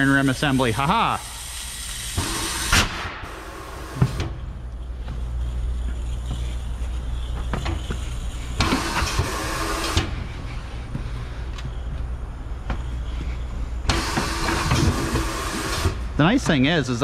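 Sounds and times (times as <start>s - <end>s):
pneumatic bead breaker hissing: 0.0s - 10.4s, 12.8s - 16.2s
low steady hum: 2.8s - 15.2s.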